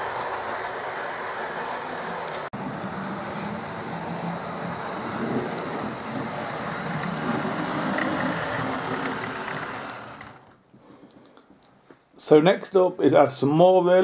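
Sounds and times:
model train motor running: 0.0s - 10.5s
wheels rumbling on rails: 0.0s - 10.5s.

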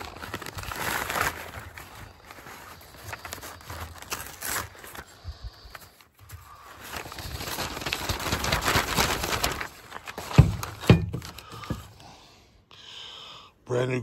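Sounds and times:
packaging rustling and crinkling: 0.0s - 12.0s.

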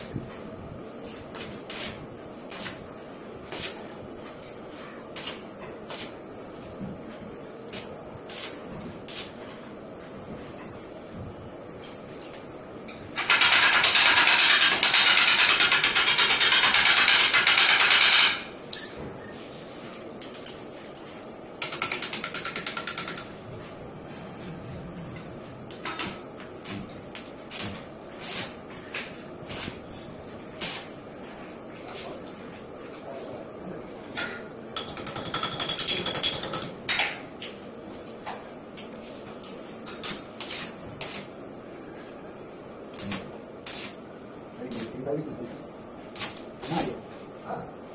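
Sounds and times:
metal clinks and taps: 18.7s - 19.1s, 34.8s - 36.8s.

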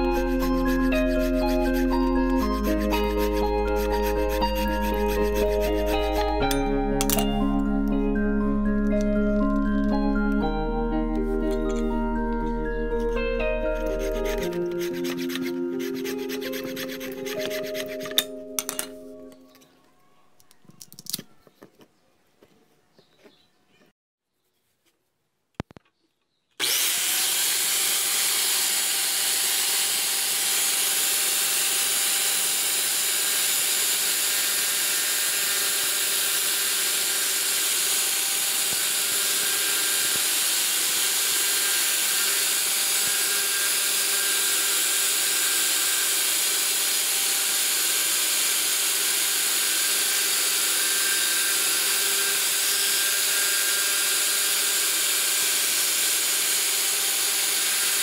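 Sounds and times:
wood sanding against spinning disc: 0.0s - 6.4s, 13.7s - 18.2s, 26.6s - 58.0s
angle grinder motor whine: 0.0s - 18.9s, 26.6s - 58.0s.

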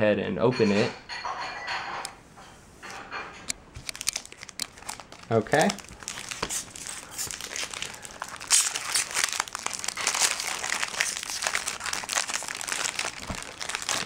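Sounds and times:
foil wrapper crinkling: 3.8s - 14.0s.

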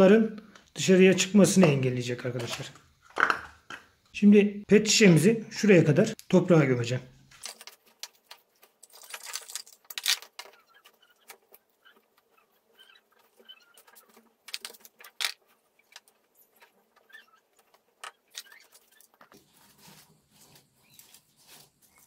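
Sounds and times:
wooden spoon scraping soil: 18.6s - 22.0s.

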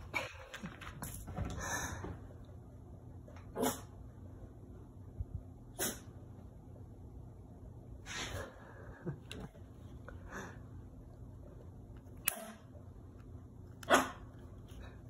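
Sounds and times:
dog sneezing: 3.6s - 3.9s, 5.8s - 6.2s.

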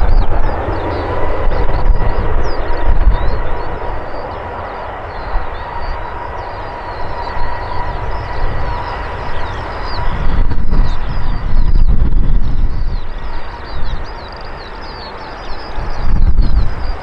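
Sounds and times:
low rumble: 0.0s - 14.1s
jet engines rushing with whine: 0.0s - 17.0s.

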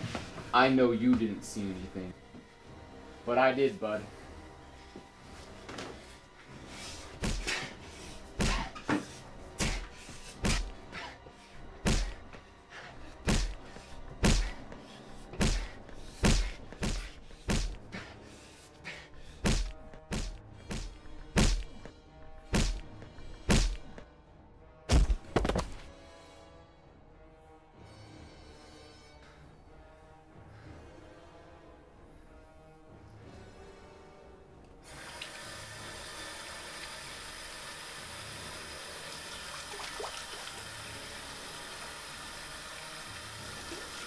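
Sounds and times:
quiet music: 0.0s - 44.0s
punches thudding on a body: 8.4s - 8.8s, 9.6s - 10.8s, 11.8s - 12.2s, 13.2s - 13.6s, 14.2s - 14.6s, 15.4s - 17.8s, 19.4s - 21.7s, 22.5s - 22.9s, 23.5s - 23.9s.

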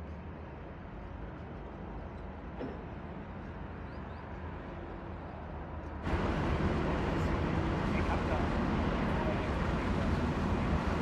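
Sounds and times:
distant traffic and machinery rumble: 0.0s - 11.0s
loud bright steady rush: 6.0s - 11.0s.

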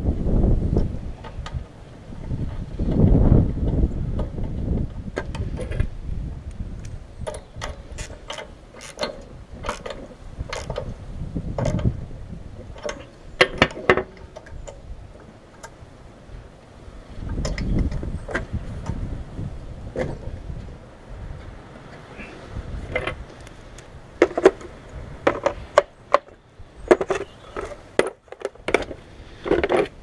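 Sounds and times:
wind rumble on microphone: 0.0s - 30.0s
socket wrench clicking: 6.8s - 10.8s.

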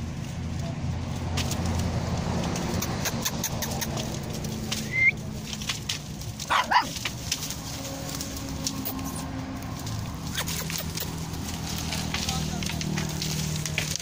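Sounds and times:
puppy yapping: 6.4s - 7.0s.

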